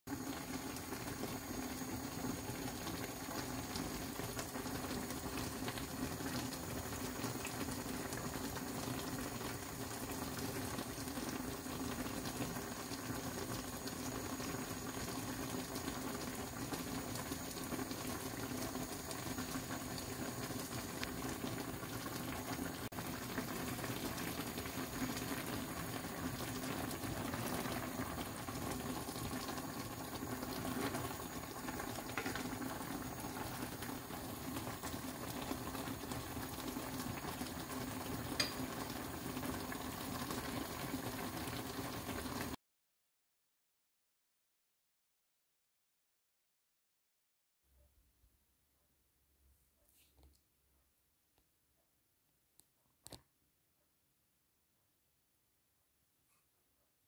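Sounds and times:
curry bubbling in a wok: 0.1s - 42.6s.

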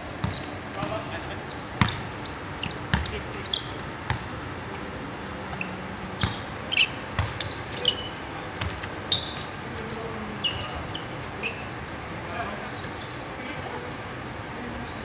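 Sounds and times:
basketball bouncing: 0.2s - 1.0s, 1.8s - 4.3s, 5.5s - 6.5s, 7.2s - 7.6s, 8.6s - 9.0s
sneaker squeaks: 0.2s - 4.4s, 5.4s - 15.0s.

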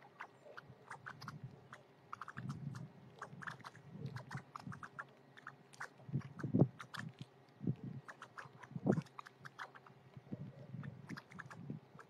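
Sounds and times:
birds pecking and shuffling: 0.0s - 12.0s.

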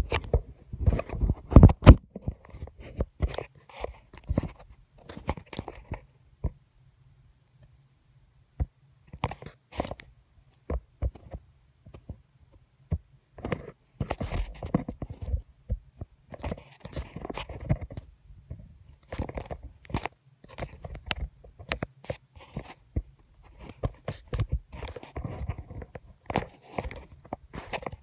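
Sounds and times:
rustling: 16.3s - 28.0s.

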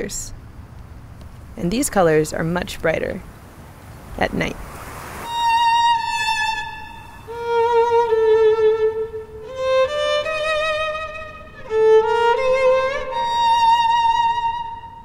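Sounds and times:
solo violin with vibrato: 5.3s - 15.0s.

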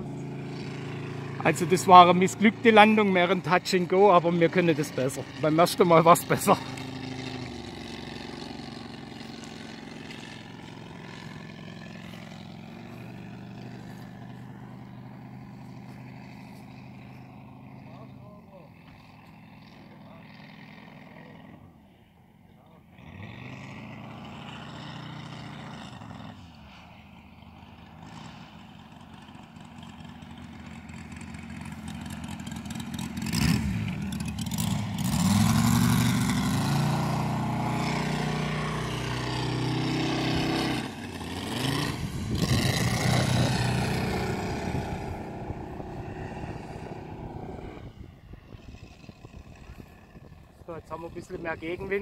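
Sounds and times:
model plane engine flying by: 0.0s - 52.0s.

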